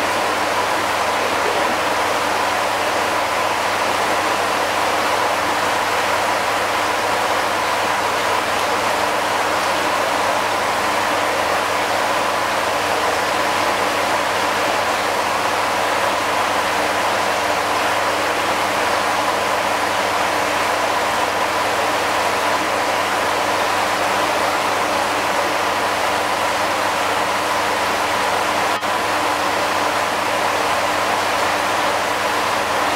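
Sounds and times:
faint hum: 0.0 - 2.8
water rushing in a pond: 0.0 - 32.9.

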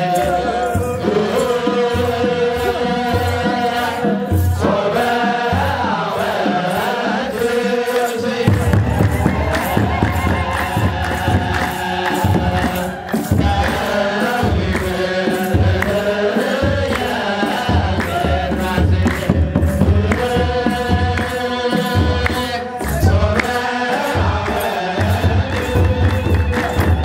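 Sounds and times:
church drum beat: 0.0 - 27.0
voices chanting in unison: 0.0 - 27.0
hand clapping: 7.4 - 27.0.

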